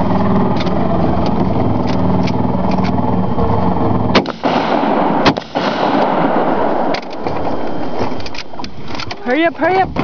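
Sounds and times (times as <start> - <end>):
boat motor running: 0.0 - 10.0
gunshots with rolling echo: 4.1 - 8.6.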